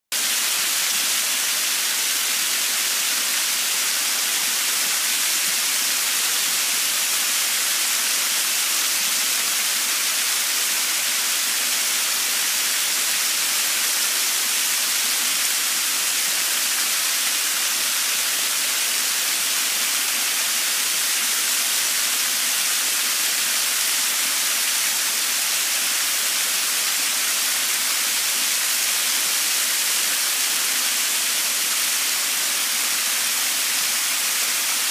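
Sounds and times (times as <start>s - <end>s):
small waterfall splashing: 0.1s - 34.9s.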